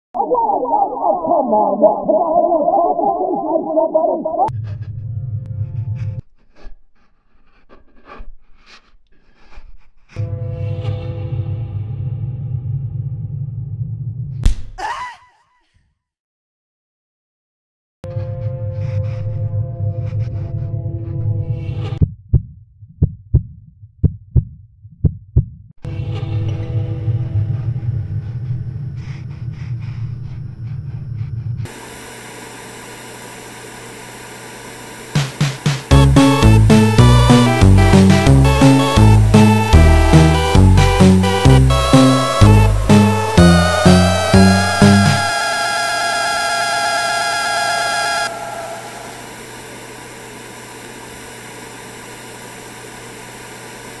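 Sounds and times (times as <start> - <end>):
music: 10.2 - 12.5, 25.9 - 28.1, 35.2 - 45.3
low rumbling drone: 26.3 - 31.7, 35.9 - 49.8.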